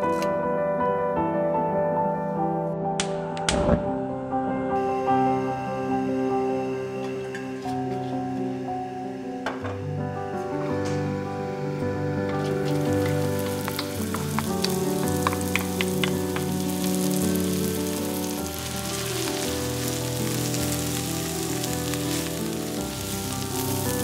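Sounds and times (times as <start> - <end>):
background music: 0.0 - 24.0
onions sizzling in oil: 11.2 - 24.0
sharp crackles and ticks: 12.3 - 22.6.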